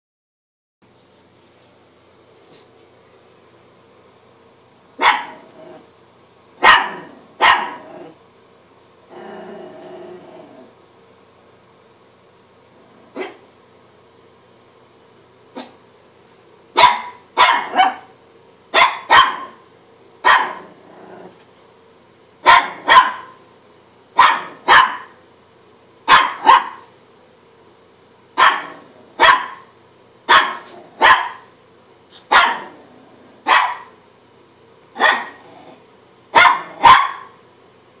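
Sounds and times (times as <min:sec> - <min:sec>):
small dog barking: 0:05.0 - 0:05.6, 0:06.6 - 0:08.1, 0:13.1 - 0:13.5, 0:16.8 - 0:19.6, 0:20.2 - 0:20.8, 0:22.4 - 0:23.4, 0:24.2 - 0:25.2, 0:26.1 - 0:26.9, 0:28.4 - 0:29.7, 0:30.3 - 0:31.5, 0:32.2 - 0:32.8, 0:33.4 - 0:34.0, 0:35.0 - 0:37.4.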